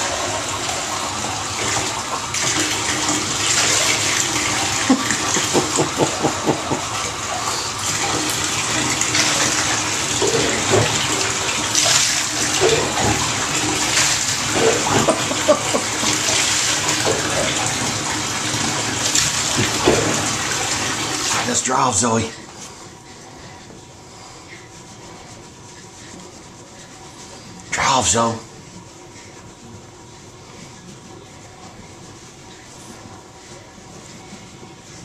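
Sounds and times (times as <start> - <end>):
water splashing: 0.0 - 21.7
water running in a bathtub: 0.0 - 35.0.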